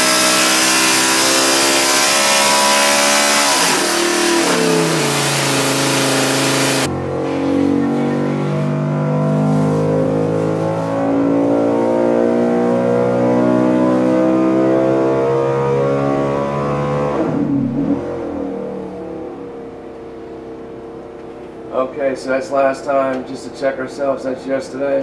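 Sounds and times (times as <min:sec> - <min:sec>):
racing engine revving: 0:00.0 - 0:19.6.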